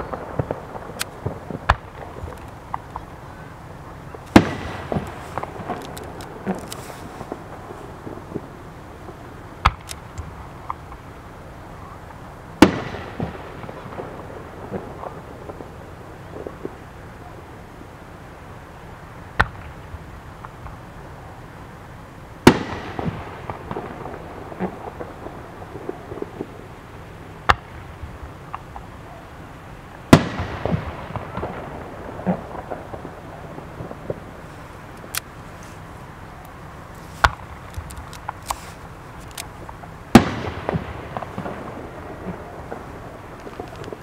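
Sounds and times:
small firework pops: 0.0 - 3.2, 4.2 - 8.5, 9.1 - 11.0, 12.6 - 14.0, 22.4 - 26.5, 30.1 - 31.6, 36.4 - 44.0
firework bangs: 0.0 - 11.1, 12.6 - 17.0, 22.4 - 28.9, 30.0 - 44.0.

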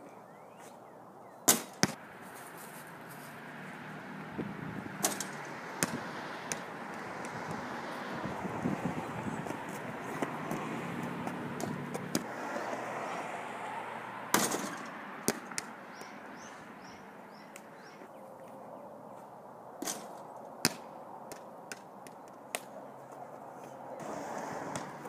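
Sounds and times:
ball bouncing on pavement: 1.5 - 2.0, 4.2 - 8.0, 9.3 - 12.3, 14.3 - 16.5, 19.8 - 23.2, 24.0 - 25.0.

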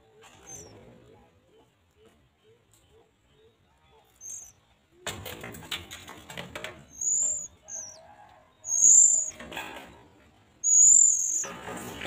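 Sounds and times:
nestlings begging calls: 0.4 - 0.7, 4.0 - 4.6, 6.8 - 9.8, 10.6 - 12.0
scratchy rustling in nest: 6.8 - 8.0.

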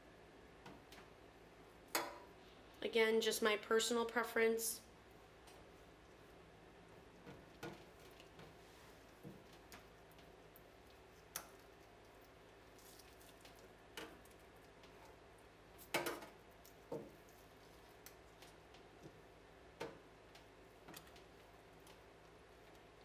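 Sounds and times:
wet yarn squishing: 7.4 - 15.9.

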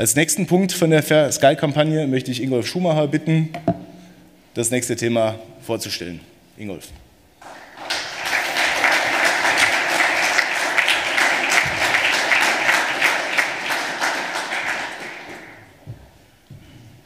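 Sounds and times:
audience applauding: 7.4 - 15.8.

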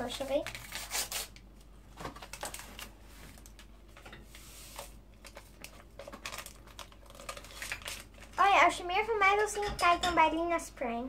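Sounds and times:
paper sachet rustling: 2.2 - 3.7, 4.4 - 8.4.

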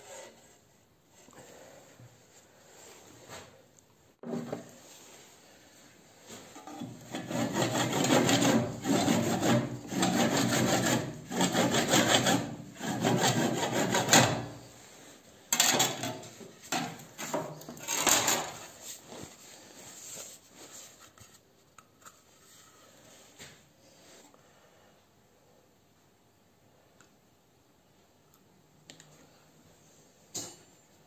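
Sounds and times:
glove rubbing spinning wooden bowl: 6.6 - 14.6.

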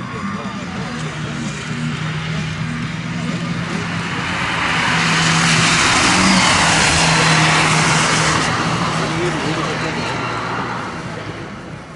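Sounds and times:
van engine: 0.0 - 11.9
tyres hissing on wet road: 3.6 - 10.8.

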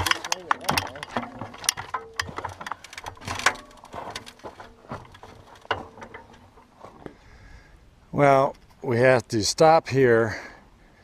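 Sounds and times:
knocks and clicks: 0.0 - 6.7
footsteps on gravel: 1.0 - 7.2.

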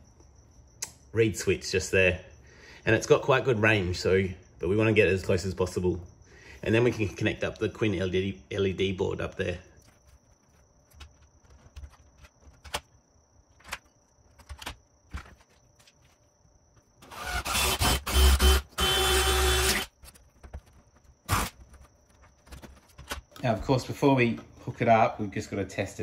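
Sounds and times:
sharp click: 0.8 - 1.0
power drill boring into wood: 17.0 - 19.9.

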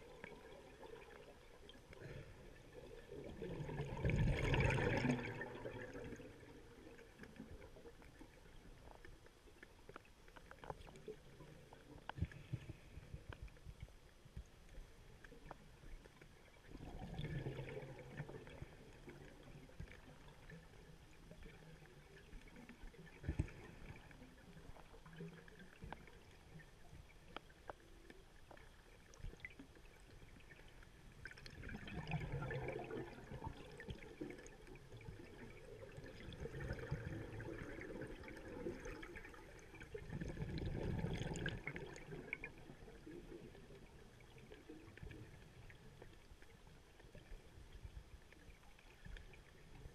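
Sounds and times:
breath bubbling underwater: 2.0 - 6.2, 31.5 - 34.0, 36.0 - 42.5
faint clicks: 7.0 - 16.4, 18.2 - 31.6.

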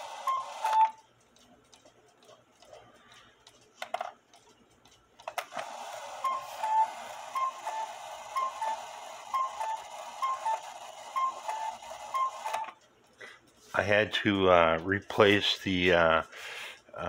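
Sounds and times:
cuckoo clock call: 0.0 - 1.0, 5.7 - 12.8
faint clock ticking: 0.0 - 5.3, 10.7 - 17.0
clock clicks: 0.0 - 13.0.

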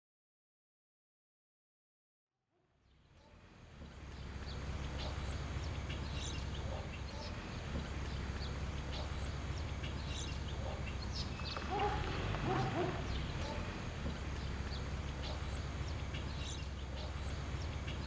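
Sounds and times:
birds chirping: 3.2 - 18.0
steady low rumble: 3.6 - 18.0.

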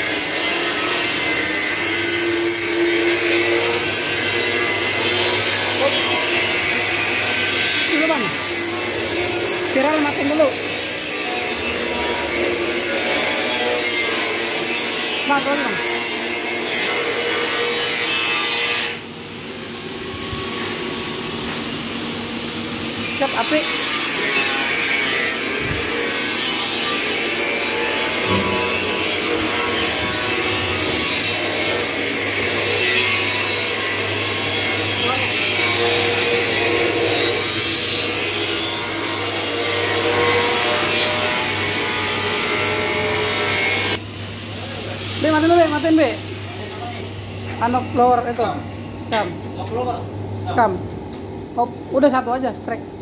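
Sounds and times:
constant machine hum: 0.0 - 53.0
machinery whirring hiss: 19.0 - 24.3.

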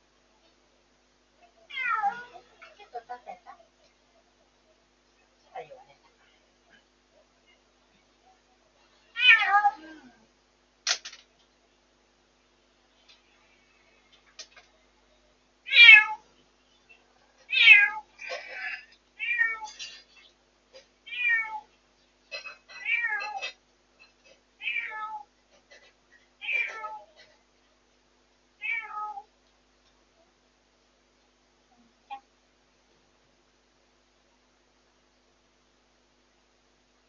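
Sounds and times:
cat meowing: 1.7 - 2.4, 9.2 - 9.9, 15.7 - 16.2, 17.5 - 19.8, 21.1 - 21.7, 22.8 - 23.5, 24.6 - 25.3, 28.6 - 29.3.

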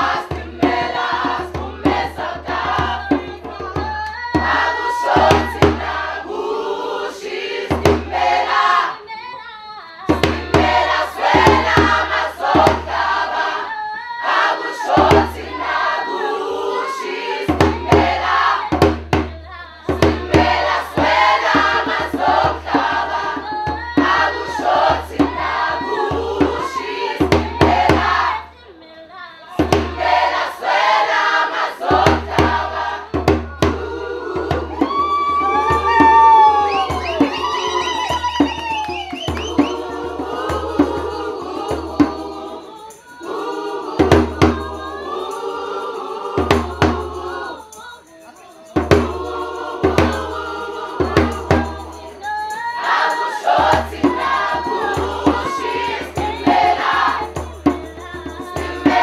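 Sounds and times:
mixed choir singing: 0.0 - 59.0
hand drum beating: 0.1 - 6.0, 7.8 - 8.2, 10.1 - 12.0, 17.5 - 28.4, 32.0 - 42.3, 48.8 - 49.2.

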